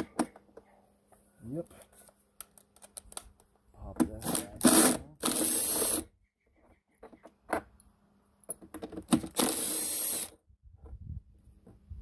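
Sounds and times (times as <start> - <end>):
cordless drill spinning: 4.7 - 6.0, 9.2 - 10.4.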